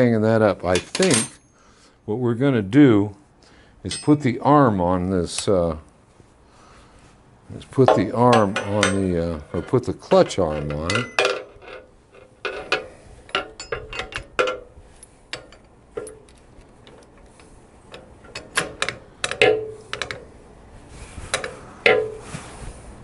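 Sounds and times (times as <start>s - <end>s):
metal parts and tools clinking: 0.7s - 1.5s, 3.9s - 4.5s, 7.8s - 20.3s.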